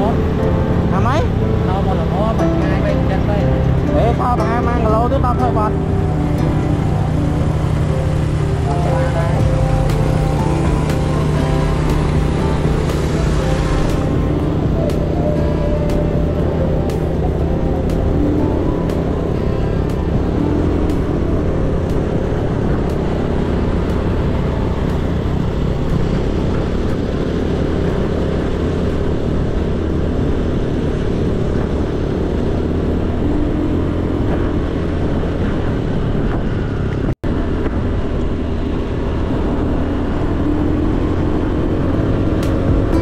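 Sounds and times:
wind noise: 9.4 - 43.0.

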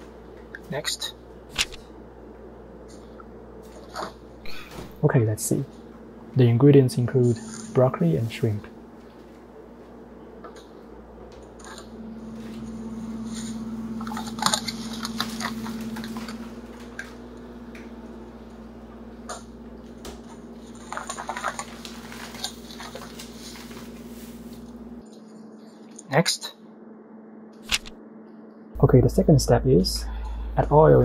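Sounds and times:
low hum: 0.0 - 25.9, 26.6 - 31.0
plastic packaging crinkling: 20.6 - 24.1.

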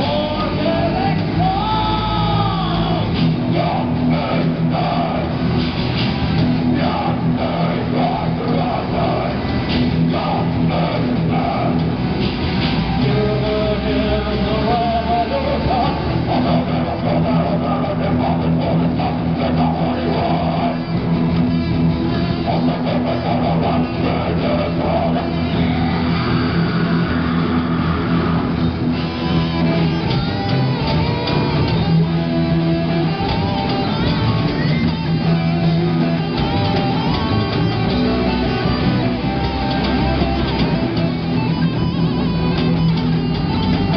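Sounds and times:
person singing into microphone: 0.0 - 5.4, 6.7 - 12.0, 13.0 - 21.0, 22.3 - 28.5
heavy metal band playing live: 0.0 - 43.9.

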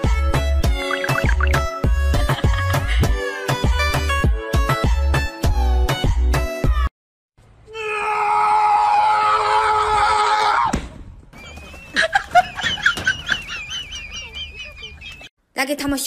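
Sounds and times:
person screaming: 7.7 - 10.7.

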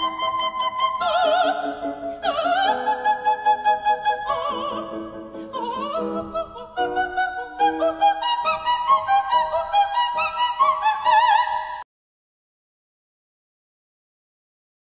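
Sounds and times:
operatic high voice singing: 0.0 - 11.8.

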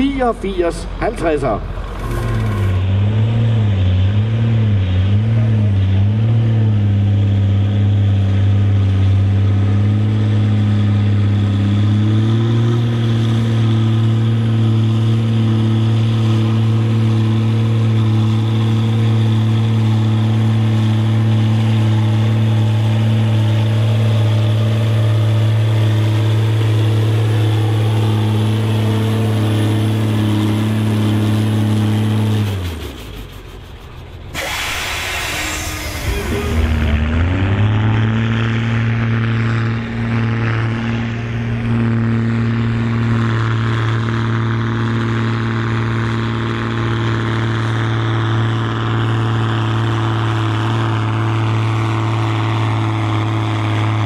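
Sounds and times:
diesel tractor engine revving: 0.0 - 54.0
loud hiss: 34.2 - 37.1.

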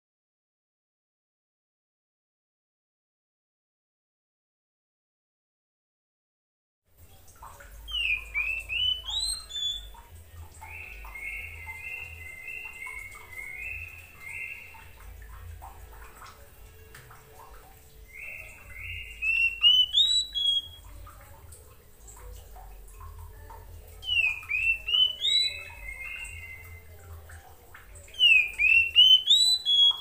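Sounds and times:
bird singing whistles: 7.9 - 10.0, 10.6 - 14.9, 18.1 - 20.8, 24.0 - 27.0, 28.1 - 30.0.

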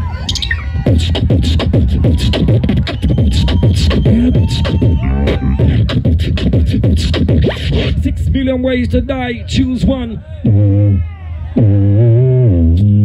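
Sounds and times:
beatboxing into microphone: 0.2 - 13.0
warbling vocal sounds: 0.3 - 8.4, 10.4 - 11.0.

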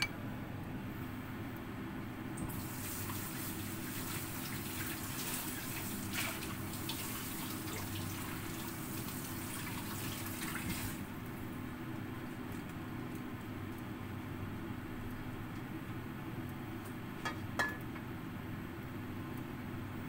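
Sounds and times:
low steady hum: 0.0 - 2.6
pot bubbling and hissing: 2.4 - 11.6.

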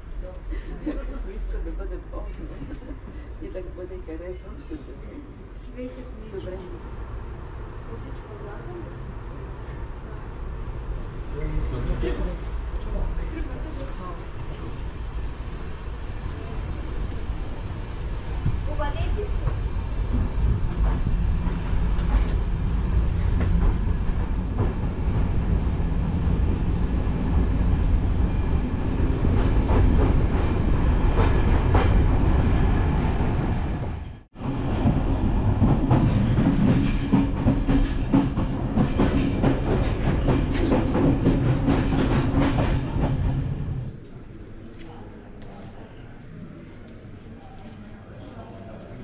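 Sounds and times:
train coach rumbling on track: 0.0 - 44.0
rail clatter and rattling: 34.7 - 43.9.

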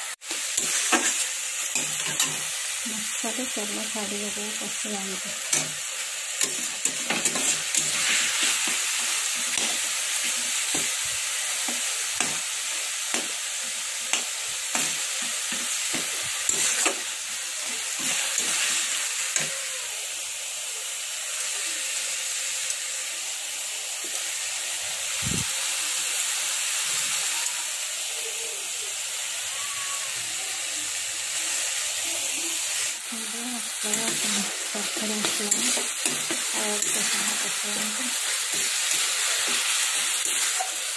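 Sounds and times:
food sizzling in oil: 0.0 - 40.9
metal spatula scraping a pan: 0.5 - 2.5, 6.4 - 10.9, 14.1 - 17.0.

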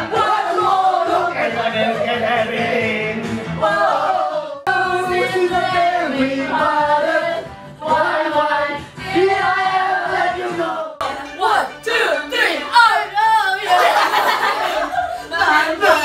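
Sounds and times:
pop backing track: 0.0 - 4.1
people singing into microphones: 0.0 - 11.2.

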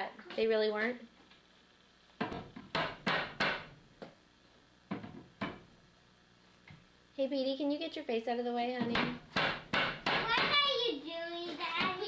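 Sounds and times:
hammer knocking on wood: 2.2 - 3.7, 8.8 - 10.7.

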